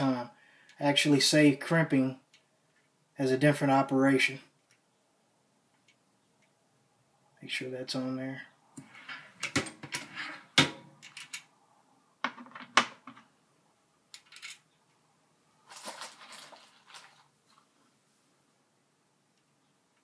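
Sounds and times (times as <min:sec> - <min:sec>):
soft handling noise: 0:15.6 - 0:18.5.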